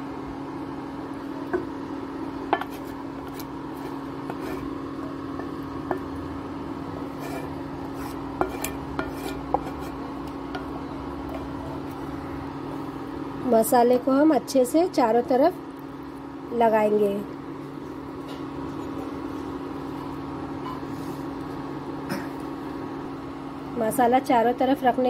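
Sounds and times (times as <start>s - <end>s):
spatula scraping metal pan: 2.6s - 4.8s, 7.0s - 10.1s.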